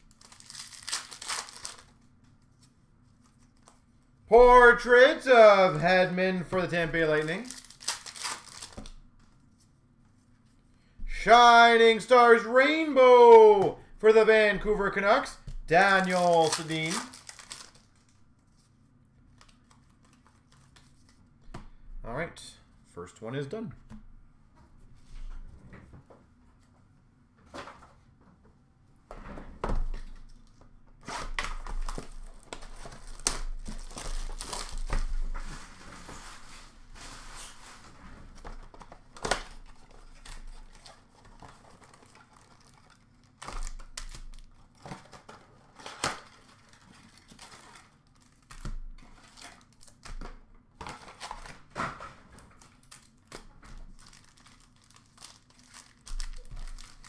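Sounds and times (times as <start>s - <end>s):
wrapper crinkling and tearing: 0.0s - 2.0s, 7.0s - 9.0s, 15.7s - 18.2s, 31.2s - 35.1s, 39.2s - 50.1s, 52.6s - 57.0s.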